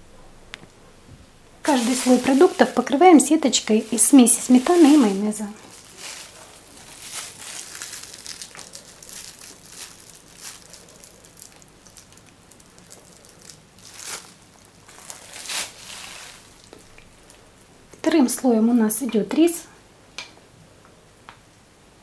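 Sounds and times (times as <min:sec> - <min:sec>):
plastic bag crinkling: 0:01.6 - 0:18.2.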